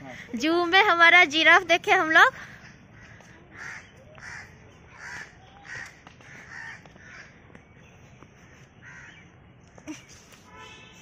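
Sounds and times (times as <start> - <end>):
crows cawing: 2.5 - 7.4, 8.8 - 9.2.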